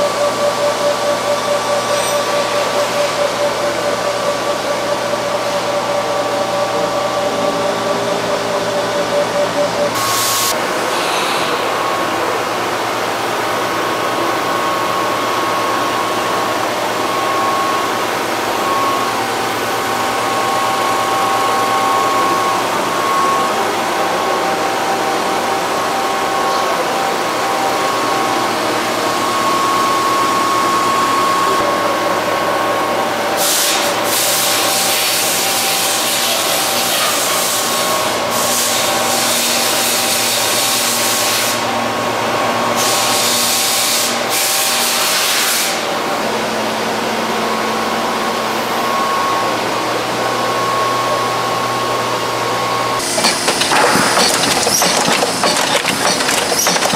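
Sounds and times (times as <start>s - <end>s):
machinery whining tones: 0.0s - 38.3s, 52.6s - 56.9s
industrial machinery hum: 0.0s - 44.4s, 45.9s - 56.9s.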